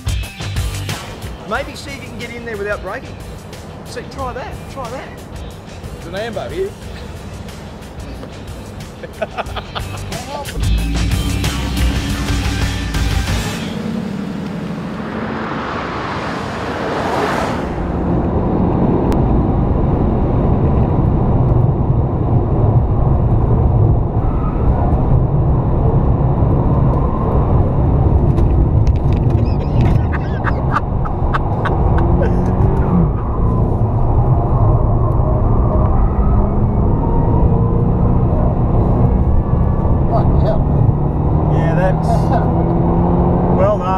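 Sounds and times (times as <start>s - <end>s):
car engine running hard: 1.0s - 43.9s
car rushing past: 11.4s - 20.7s, 23.4s - 43.9s.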